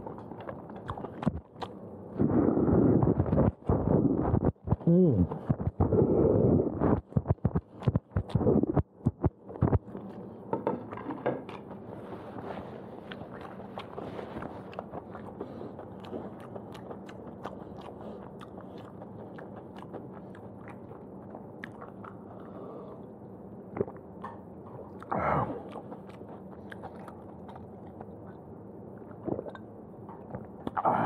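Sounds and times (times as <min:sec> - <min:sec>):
lip and tongue clicks: 0:14.7 - 0:21.0.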